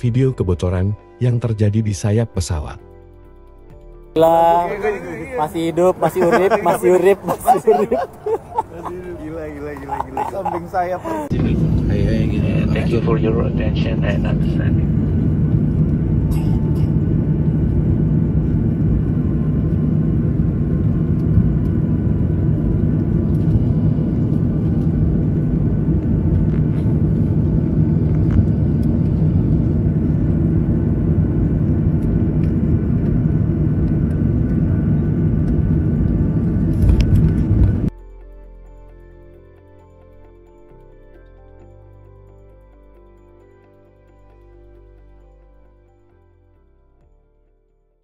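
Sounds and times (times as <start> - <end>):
jet engines rumbling in cabin: 6.0 - 37.9.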